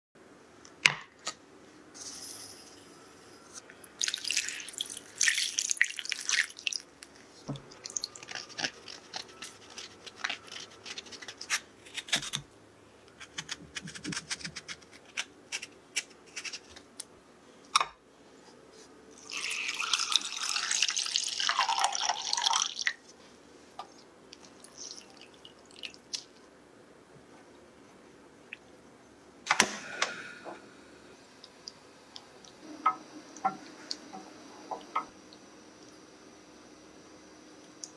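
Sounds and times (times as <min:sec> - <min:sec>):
water poured into a bowl: 0:04.0 - 0:06.8, 0:19.2 - 0:23.0
water poured into a saucepan: 0:04.0 - 0:06.8, 0:19.2 - 0:22.9
taps and scrapes of peeling: 0:13.2 - 0:16.8.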